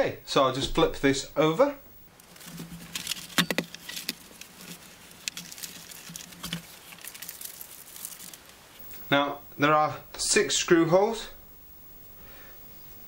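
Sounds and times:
faint low hum: 0:00.0 - 0:13.0
tablet and cables handling clicks: 0:03.0 - 0:04.5.

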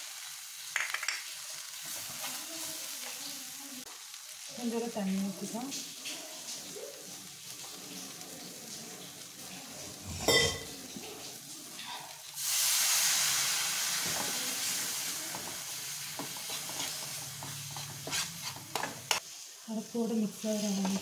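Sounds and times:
water sizzling in hot oil: 0:00.0 - 0:21.0
spatula stirring: 0:15.4 - 0:19.2, 0:20.4 - 0:21.0.

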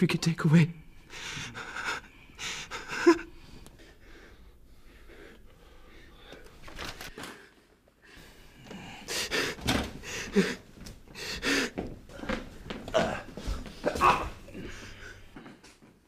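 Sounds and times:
man gasping and breathing hard: 0:01.1 - 0:12.4.

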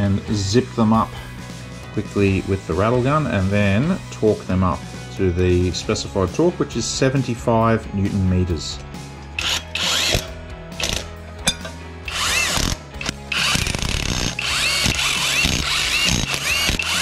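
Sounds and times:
impact wrench hammering: 0:09.4 - 0:17.0.

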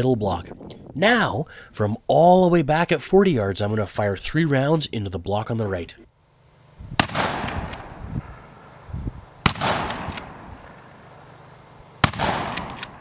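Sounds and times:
shotgun shots: 0:07.0 - 0:08.5, 0:09.4 - 0:11.0, 0:12.0 - 0:13.0
rolling echo: 0:07.0 - 0:08.8, 0:09.4 - 0:13.0.

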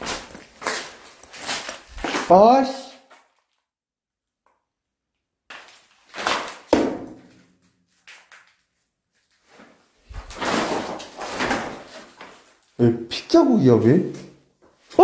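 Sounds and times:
camera scuffing and rubbing: 0:00.0 - 0:02.3
knocks and thuds on concrete stairs: 0:06.7 - 0:07.4.

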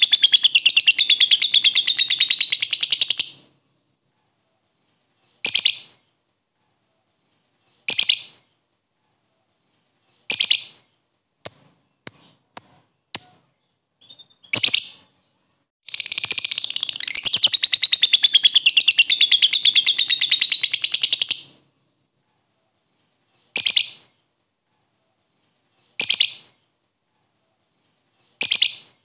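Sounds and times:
lovebird chirps: 0:00.0 - 0:03.6, 0:04.8 - 0:06.2, 0:07.2 - 0:08.6, 0:09.6 - 0:21.7, 0:23.5 - 0:24.2, 0:25.9 - 0:26.7, 0:28.4 - 0:29.0.

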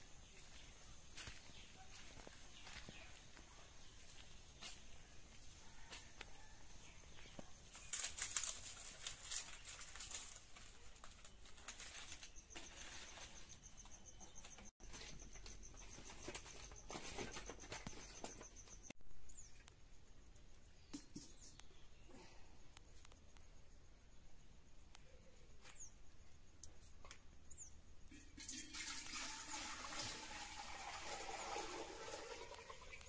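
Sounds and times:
dry palm fronds rustling: 0:07.6 - 0:13.6.

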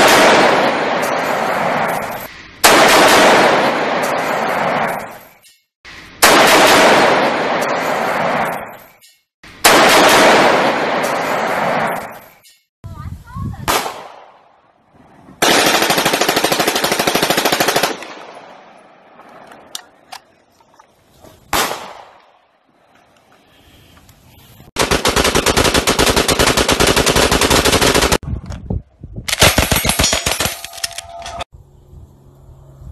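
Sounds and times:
single rifle shots: 0:00.0 - 0:01.8, 0:02.6 - 0:04.9, 0:09.6 - 0:12.1, 0:13.7 - 0:14.5, 0:21.5 - 0:22.3.

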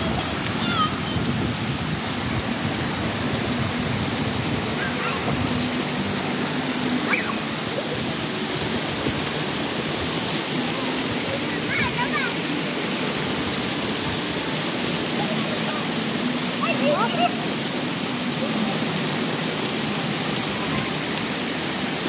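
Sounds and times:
water showering onto wet paving: 0:00.0 - 0:22.0.

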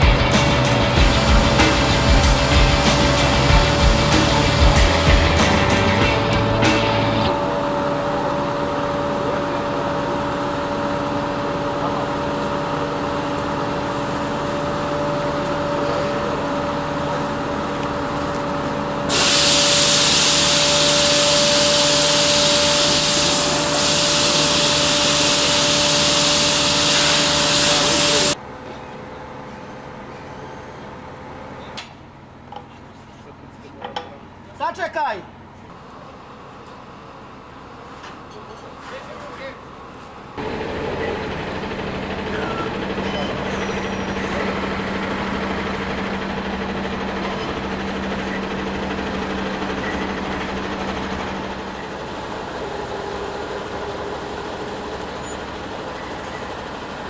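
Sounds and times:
heavy machine engine running: 0:00.0 - 0:32.5, 0:39.6 - 0:57.0
loud hiss: 0:19.1 - 0:28.4.

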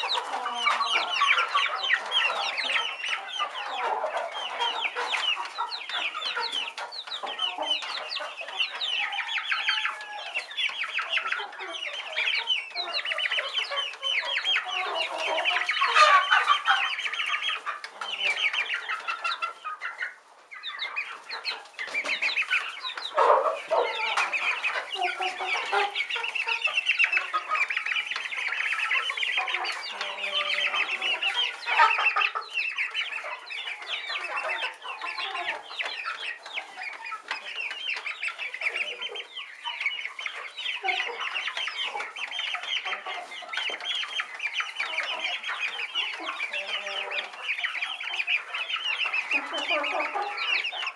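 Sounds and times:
young chickens calling: 0:00.0 - 0:50.9.

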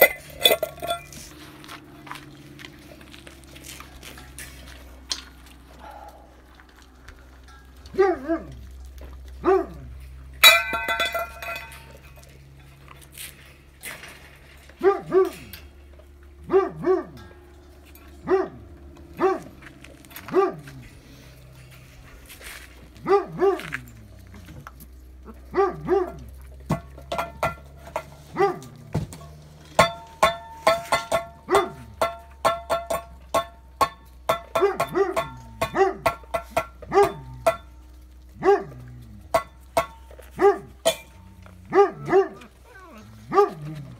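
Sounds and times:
low steady hum: 0:00.0 - 0:43.9
dog barking: 0:05.8 - 0:06.4, 0:09.4 - 0:09.8, 0:14.8 - 0:15.4, 0:16.5 - 0:17.2, 0:18.2 - 0:18.6, 0:19.2 - 0:19.6, 0:20.3 - 0:20.6, 0:23.0 - 0:23.8, 0:25.5 - 0:26.2, 0:28.3 - 0:28.7, 0:34.5 - 0:36.2, 0:36.9 - 0:37.6, 0:38.4 - 0:38.8, 0:40.3 - 0:40.8, 0:41.7 - 0:43.6.

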